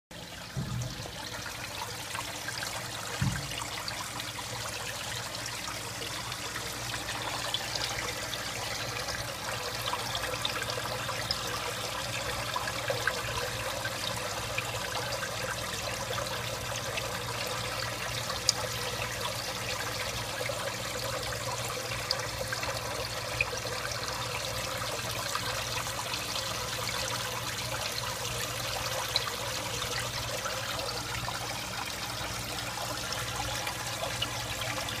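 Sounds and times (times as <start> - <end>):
filter water trickling and splashing: 0.1 - 35.0
low steady hum: 0.2 - 35.0
soft bump: 0.5 - 1.4, 3.2 - 3.7.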